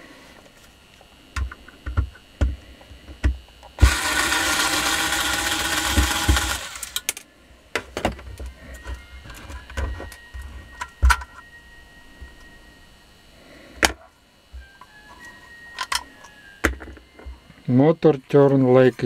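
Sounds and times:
power tool whirring: 3.2 - 7.2.

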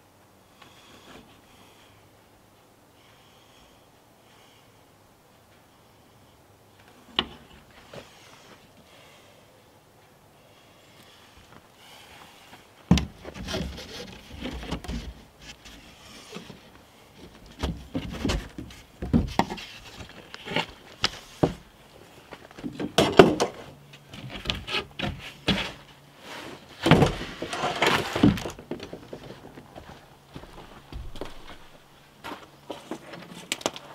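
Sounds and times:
wood knocking and scraping on wood: 12.9 - 21.6, 22.5 - 33.6.

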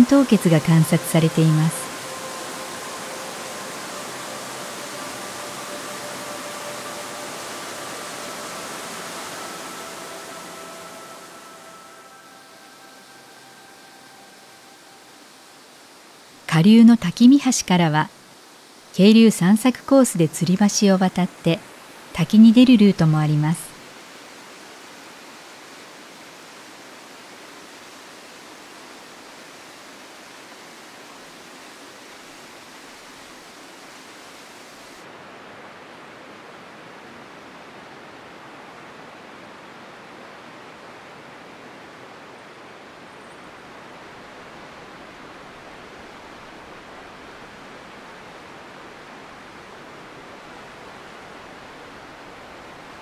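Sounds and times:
waterfall rushing: 0.0 - 16.5.

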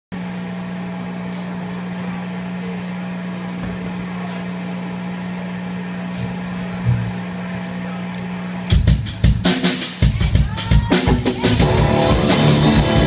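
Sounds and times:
amplifier electrical hum: 0.2 - 8.9.

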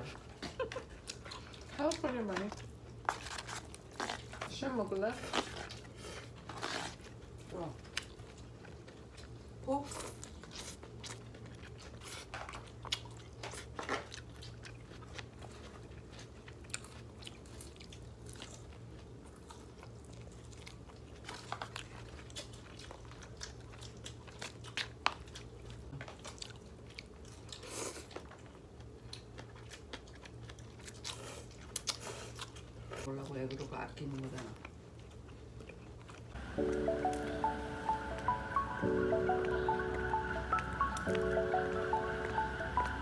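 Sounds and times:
chewing and biting food: 0.0 - 37.4
low hum: 36.4 - 43.0.

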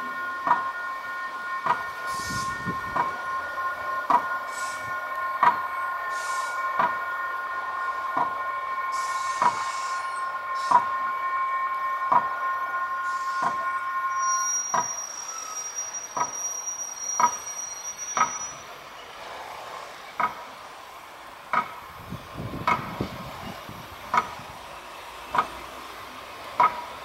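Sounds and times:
train horn chord: 0.0 - 15.1
high squeal: 2.0 - 6.8, 8.6 - 11.8, 12.4 - 19.3.

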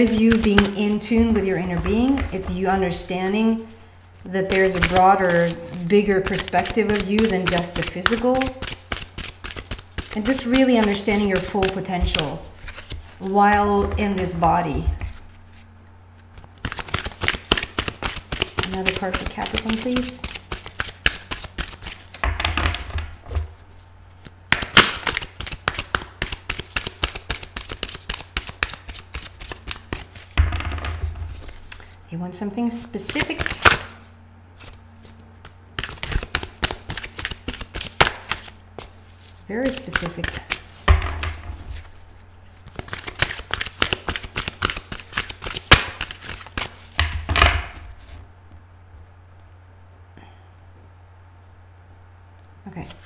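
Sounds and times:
cards being shuffled: 0.0 - 32.0, 33.0 - 48.3
card slap: 24.5 - 27.2, 33.4 - 34.0, 42.8 - 47.5.

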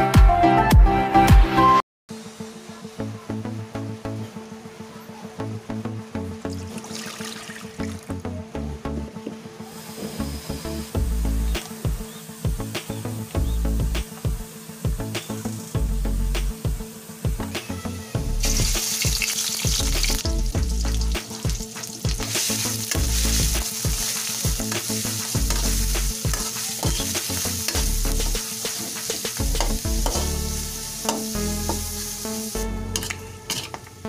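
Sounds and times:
meat sizzling in hot oil: 10.2 - 17.5, 18.2 - 33.6
spatula scraping metal wok: 21.2 - 33.8.

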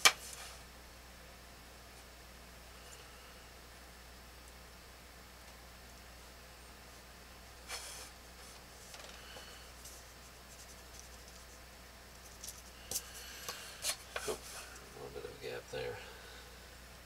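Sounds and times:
ruler rustling on paper: 0.0 - 0.6
faint steady hum: 0.0 - 17.0.

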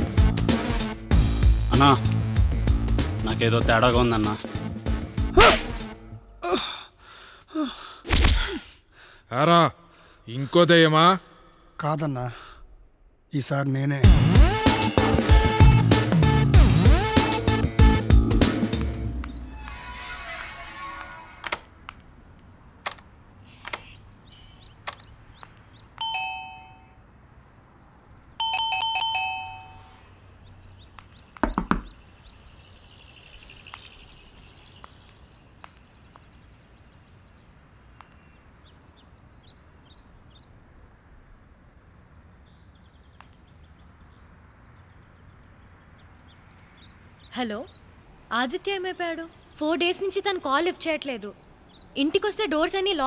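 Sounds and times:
two-note doorbell chime: 26.0 - 27.0, 28.4 - 29.9
dull thump: 31.4 - 32.0
knocks at door: 31.4 - 32.0.

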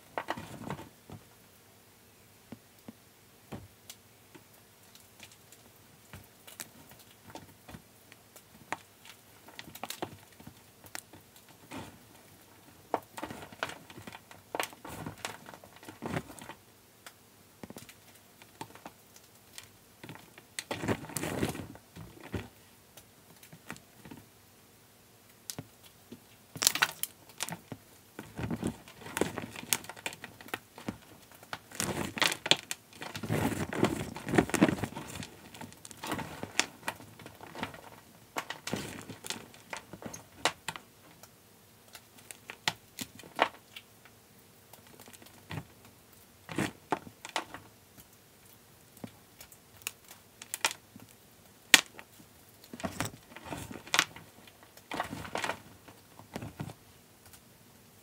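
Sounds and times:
chalk crunching and crumbling: 26.6 - 40.9.

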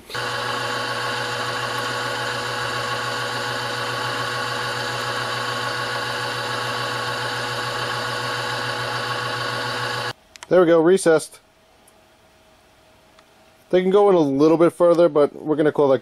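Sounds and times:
drill press running: 0.0 - 10.2.

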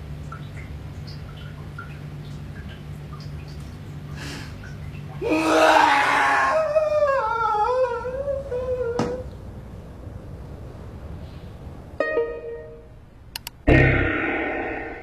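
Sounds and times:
person crying out: 5.2 - 8.2
wavering moan: 5.2 - 9.2
sharp click: 13.3 - 14.6.

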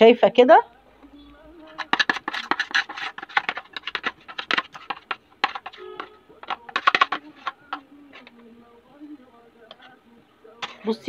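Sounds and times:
plastic container tapped and shaken: 1.6 - 8.4.

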